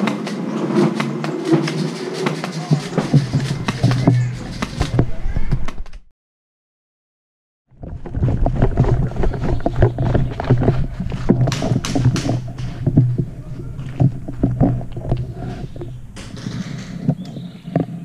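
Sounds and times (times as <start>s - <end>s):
handling knocks and rustling: 0.0s - 6.0s, 7.8s - 18.0s
low rumble: 7.7s - 17.6s
sharp cracks: 9.8s - 17.4s.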